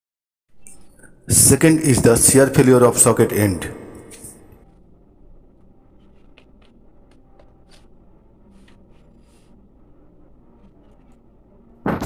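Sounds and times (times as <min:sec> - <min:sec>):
computer mouse clicking and sliding: 0:06.0 - 0:07.9, 0:08.5 - 0:09.6, 0:10.5 - 0:11.4.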